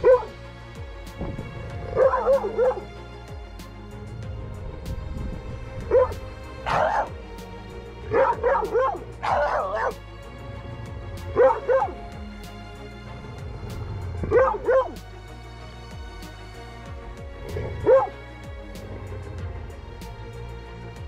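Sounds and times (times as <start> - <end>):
dog barking and yipping: 0.0 - 0.4, 1.9 - 2.9, 5.9 - 7.1, 8.1 - 10.0, 11.3 - 12.0, 14.2 - 15.0, 17.6 - 18.2
background music: 0.0 - 21.0.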